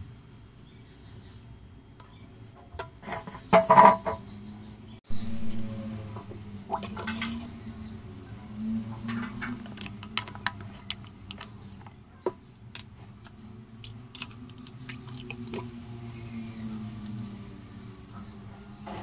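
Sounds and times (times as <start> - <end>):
low hum: 5.1 - 19.0
water splashing in basin: 13.8 - 15.8.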